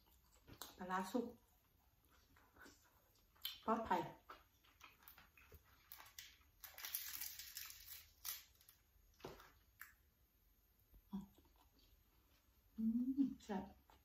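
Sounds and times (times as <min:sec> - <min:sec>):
fish skin tearing and crackling: 0:05.9 - 0:08.8.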